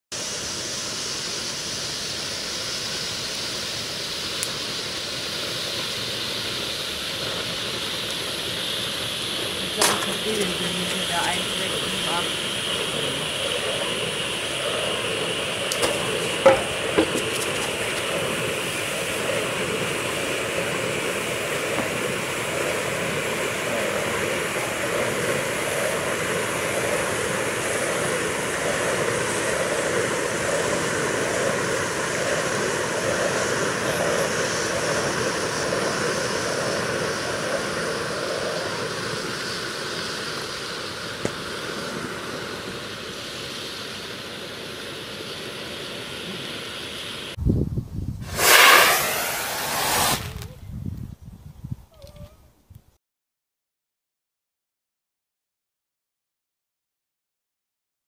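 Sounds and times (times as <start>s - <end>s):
fireworks lances hissing: 0.1s - 47.4s, 48.2s - 50.7s
sharp pops: 9.7s - 12.8s, 15.6s - 18.2s, 48.2s - 50.6s.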